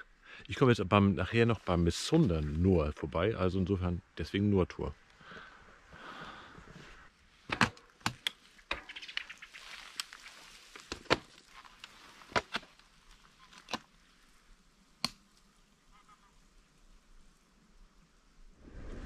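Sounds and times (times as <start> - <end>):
faint hiss: 0.0 - 7.5, 8.2 - 19.0.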